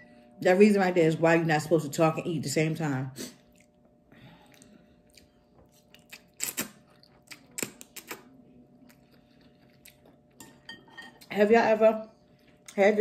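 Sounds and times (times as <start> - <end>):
quiet chewing: 3.4 - 11.3.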